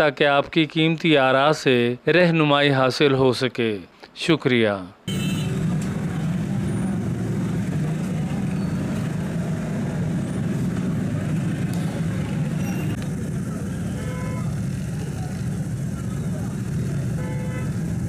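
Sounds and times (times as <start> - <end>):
idling motorcycle engines: 5.5 - 18.0.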